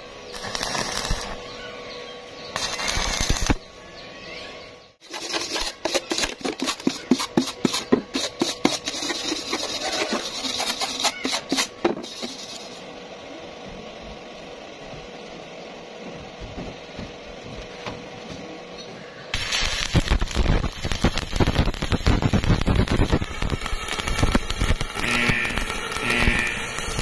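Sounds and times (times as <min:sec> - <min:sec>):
welding arc crackling: 0:00.0 - 0:01.6, 0:02.5 - 0:03.7, 0:08.2 - 0:12.9, 0:19.3 - 0:27.0
wire brush scrubbing metal: 0:05.0 - 0:12.8.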